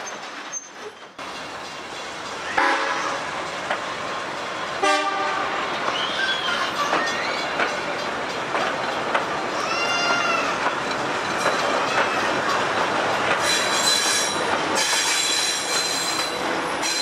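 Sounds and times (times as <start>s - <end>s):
wheels clacking over rail joints: 0.0s - 17.0s
high wheel squeals: 5.9s - 7.8s, 13.4s - 17.0s.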